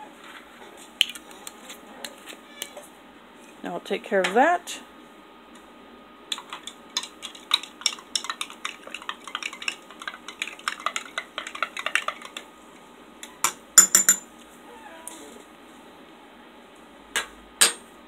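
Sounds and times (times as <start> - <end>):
spoon clinking in glass: 13.8 - 14.2.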